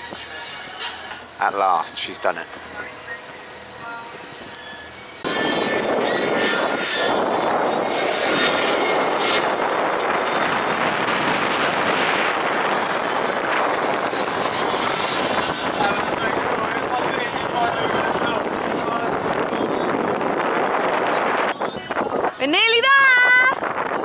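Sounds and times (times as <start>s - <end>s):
jet airliner flying overhead: 0.0s - 24.0s.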